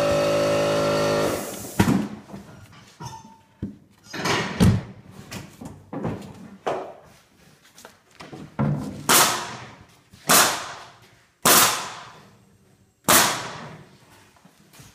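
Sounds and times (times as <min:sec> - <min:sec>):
nail gun firing into wood: 0:09.1 - 0:09.7, 0:10.3 - 0:10.8, 0:11.4 - 0:12.2, 0:13.1 - 0:13.8.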